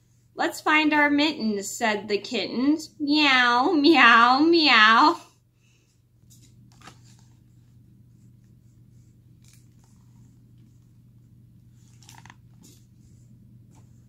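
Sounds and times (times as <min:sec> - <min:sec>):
steady low hum: 0:00.0 - 0:14.0
book pages rustling: 0:06.2 - 0:14.0.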